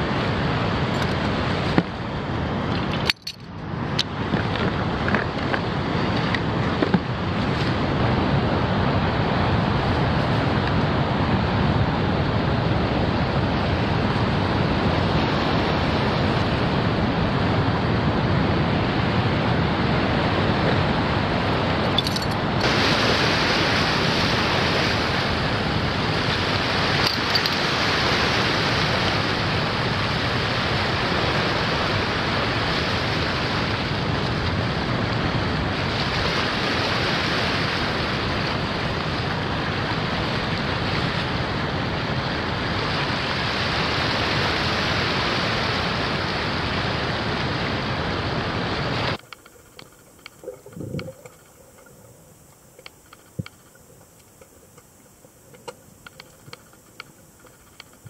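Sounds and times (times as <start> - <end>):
wind and water rush from boat: 0.0 - 58.0
faint clicks and knocks: 49.2 - 58.0.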